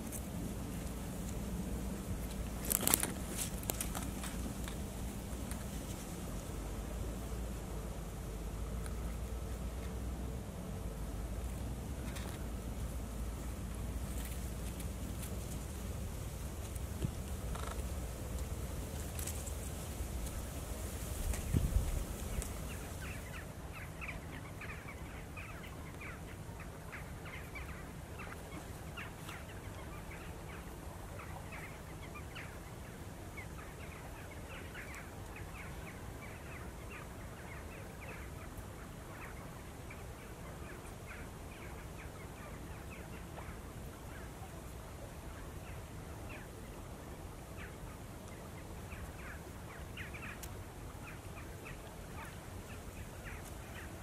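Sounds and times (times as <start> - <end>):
low background noise: 0.0 - 54.0
geese calling: 47.6 - 54.0.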